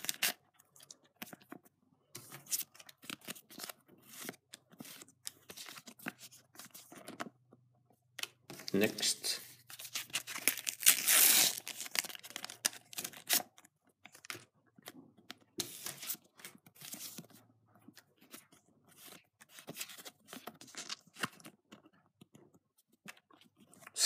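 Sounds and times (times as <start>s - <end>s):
paper packet ripping: 9.7s - 13.5s.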